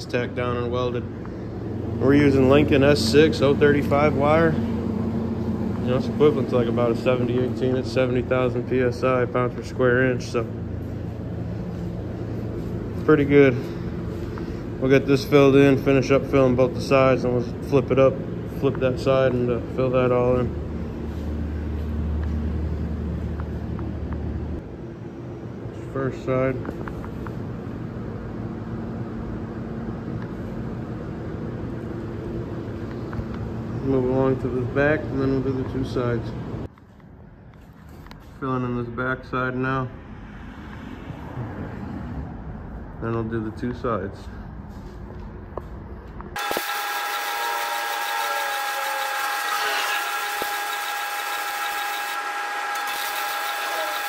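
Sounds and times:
shop machinery humming: 0.0s - 38.8s, 44.3s - 54.0s
welding arc crackling and hissing: 46.4s - 54.0s.

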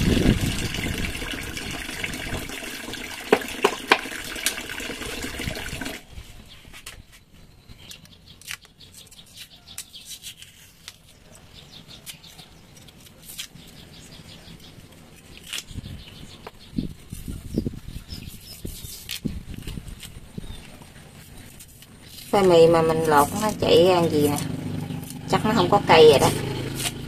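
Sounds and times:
skin peeling clicks and snaps: 7.9s - 11.0s.

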